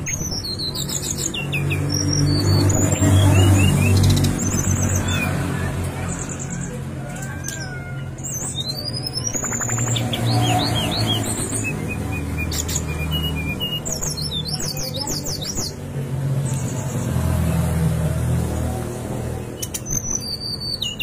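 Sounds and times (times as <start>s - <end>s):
bird singing whistled phrases: 8.3s - 15.8s, 19.6s - 21.0s.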